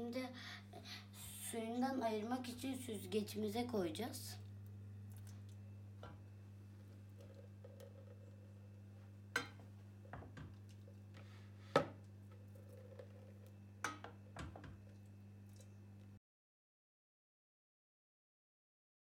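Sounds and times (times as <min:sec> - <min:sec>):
wooden spoon knocking on metal: 0:09.4 - 0:10.6.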